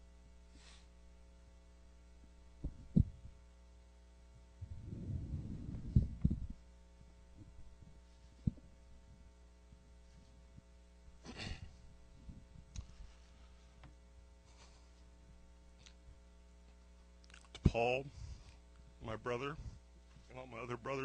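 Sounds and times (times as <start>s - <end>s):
microphone electrical hum: 0.0s - 21.0s
breathy rush of noise: 4.6s - 6.3s.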